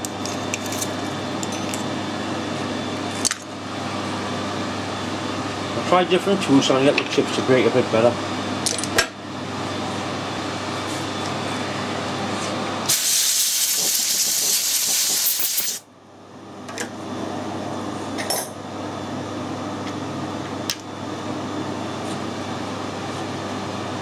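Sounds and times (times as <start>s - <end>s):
shop machinery humming: 0.0s - 24.0s
loud hiss: 12.9s - 15.8s.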